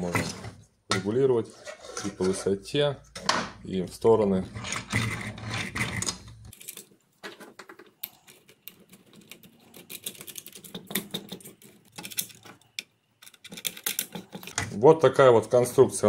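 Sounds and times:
plastic and metal parts clicking: 0:05.8 - 0:14.8.

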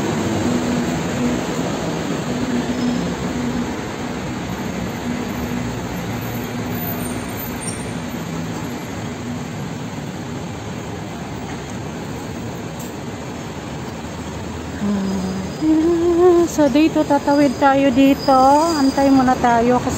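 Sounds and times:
road traffic passing: 0:00.0 - 0:19.9
low engine hum: 0:08.1 - 0:17.2.

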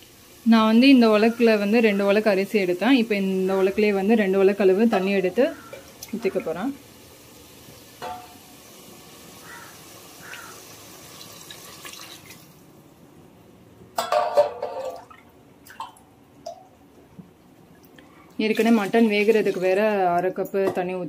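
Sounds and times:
water splashing and dripping: 0:05.0 - 0:06.8, 0:10.2 - 0:12.6, 0:14.4 - 0:17.0, 0:17.6 - 0:19.8.

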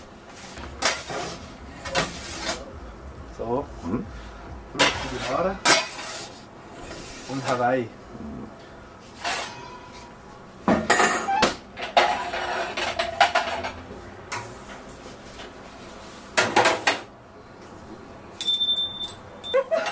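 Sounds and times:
plates pans and utensils clattering: 0:00.4 - 0:02.7, 0:04.8 - 0:07.6, 0:10.7 - 0:13.8.

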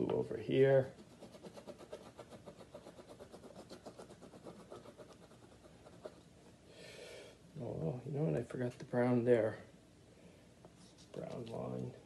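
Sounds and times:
crayon scratching on paper: 0:00.8 - 0:06.2.

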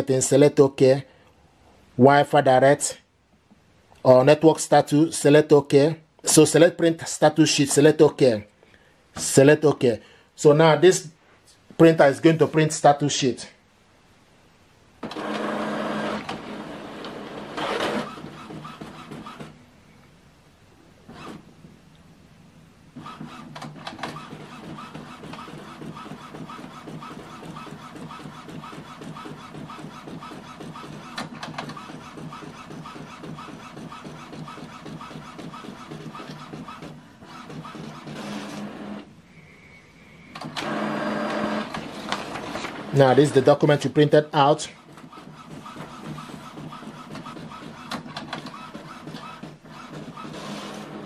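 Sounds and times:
printer motor running: 0:15.0 - 0:19.5, 0:23.0 - 0:39.1, 0:40.4 - 0:43.6, 0:44.9 - 0:51.0
printer rhythmic whirring: 0:15.0 - 0:19.6, 0:21.1 - 0:21.4, 0:23.0 - 0:39.1, 0:40.3 - 0:43.9, 0:44.8 - 0:51.0.

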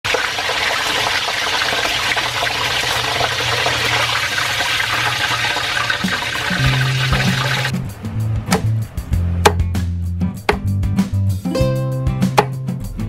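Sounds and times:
hot oil sizzling and crackling: 0:00.0 - 0:07.8
oil dripping: 0:01.0 - 0:09.8
music: 0:06.0 - 0:13.0.

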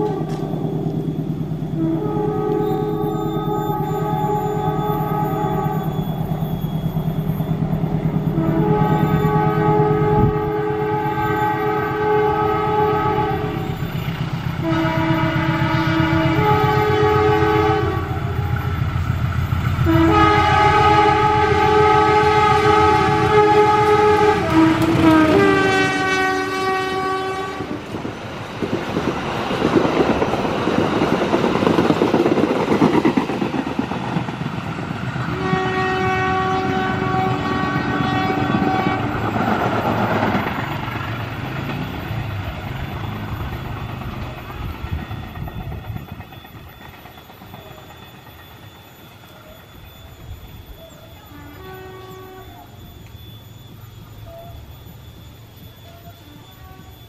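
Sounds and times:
locomotive horn blasts: 0:00.0 - 0:01.0, 0:01.6 - 0:06.4, 0:08.3 - 0:13.8, 0:14.6 - 0:18.7, 0:19.7 - 0:28.0, 0:35.3 - 0:39.4, 0:50.7 - 0:52.9, 0:54.2 - 0:54.7, 0:55.7 - 0:57.0
train wheels clacking on rails: 0:00.0 - 0:01.7, 0:17.8 - 0:50.3
locomotive engine rumble: 0:00.0 - 0:48.7.

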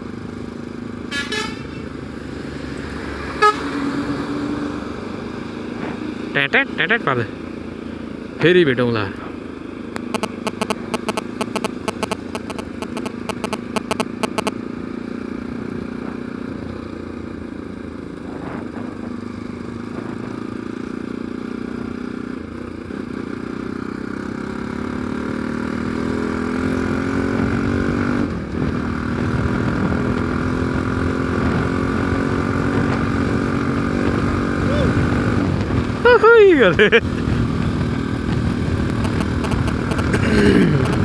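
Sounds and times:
motorcycle engine running: 0:09.4 - 0:36.1, 0:36.8 - 0:41.0
rapid clicking: 0:10.0 - 0:14.5.

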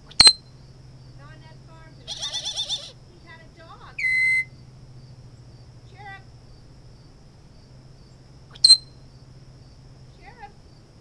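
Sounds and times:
faint parrot chirps: 0:00.0 - 0:03.0, 0:03.8 - 0:06.6, 0:08.0 - 0:09.2
parrot whistling: 0:02.0 - 0:03.0, 0:04.0 - 0:04.6.

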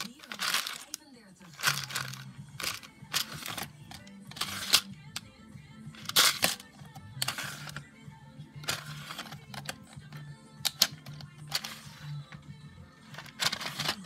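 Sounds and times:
plastic pieces rattling: 0:00.0 - 0:04.9, 0:06.0 - 0:07.8, 0:08.6 - 0:10.0, 0:10.6 - 0:11.9, 0:13.1 - 0:14.0
soft background music: 0:00.0 - 0:14.0
plastic drawers sliding: 0:01.6 - 0:04.9, 0:07.2 - 0:07.8, 0:08.6 - 0:09.9, 0:10.7 - 0:12.2, 0:13.1 - 0:14.0.

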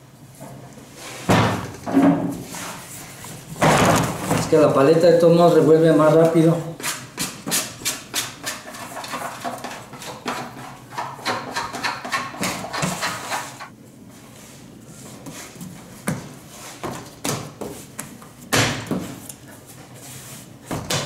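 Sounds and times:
dough thumping on table: 0:16.0 - 0:19.2.

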